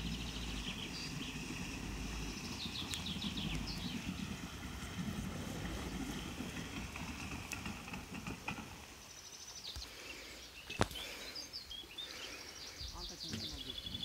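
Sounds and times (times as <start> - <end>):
distant outboard motor rumble: 0.0 - 9.0
faint birdsong: 0.0 - 14.0.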